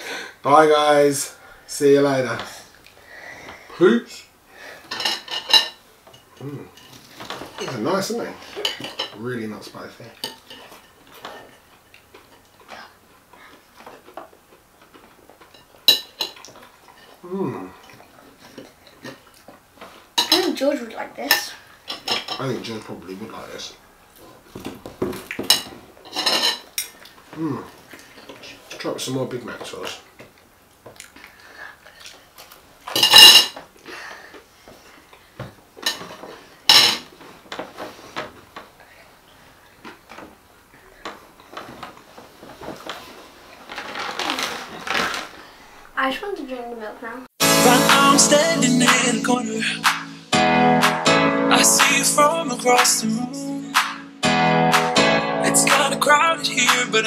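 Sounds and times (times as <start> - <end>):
cutlery clattering on plate: 4.9 - 5.8, 8.6 - 9.2, 21.9 - 22.4, 25.4 - 27.0, 32.9 - 33.6, 35.8 - 37.1
forks clinking on plates: 25.4 - 27.0, 32.9 - 33.6.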